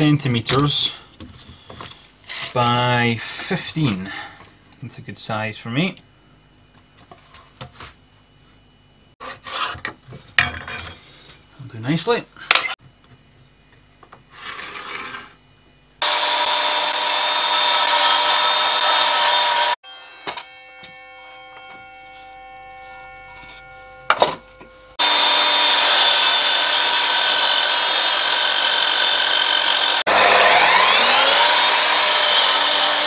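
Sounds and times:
mitre saw cutting wood: 16.0 - 33.0.

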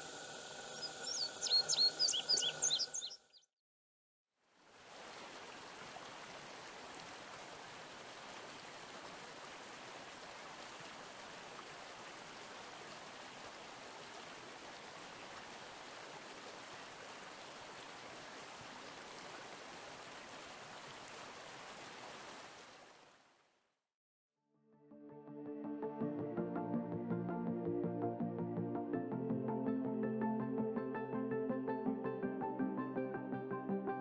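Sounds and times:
stream flowing: 0.0 - 3.0, 4.5 - 23.4.

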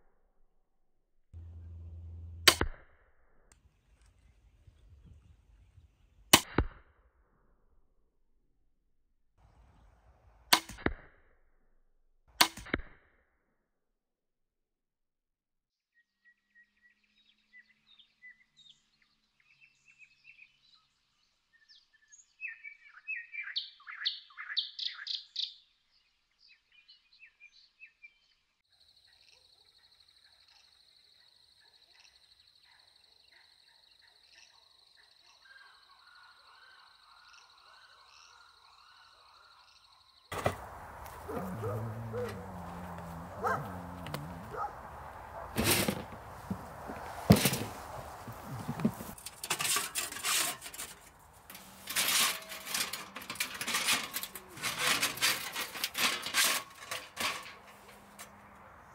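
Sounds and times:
small birds chirping: 16.4 - 45.6
camp gear rustling and knocking: 40.3 - 58.3.

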